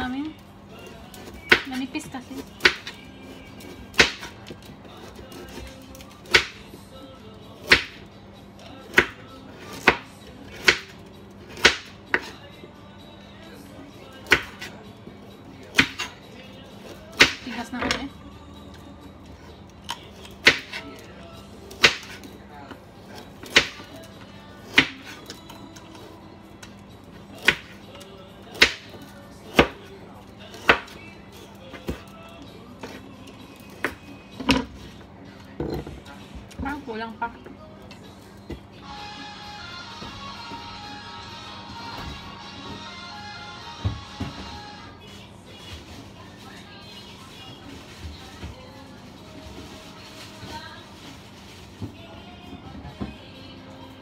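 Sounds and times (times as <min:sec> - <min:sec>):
knife chopping on wooden board: 0:03.9 - 0:04.4.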